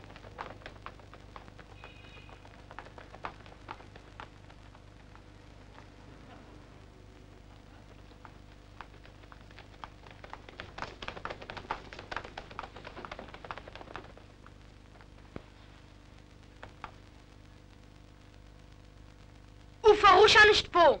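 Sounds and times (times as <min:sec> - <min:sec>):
children running on cobblestones: 0:00.0 - 0:06.3, 0:07.2 - 0:15.6, 0:16.5 - 0:17.1
steady low hum: 0:00.0 - 0:21.0.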